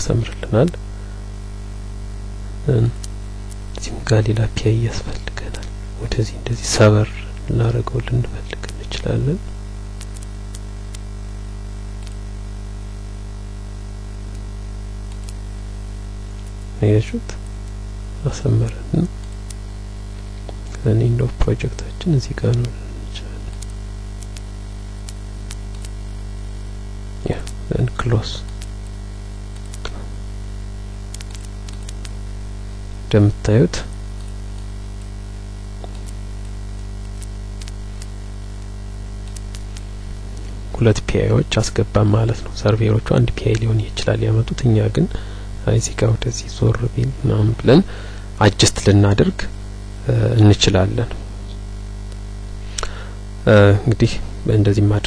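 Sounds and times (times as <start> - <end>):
electrical mains hum: 0.0 - 55.0
microphone hiss: 0.0 - 55.0
faint clicks: 12.0 - 12.2, 15.1 - 15.4, 23.5 - 26.0, 31.1 - 32.2, 35.8 - 40.8.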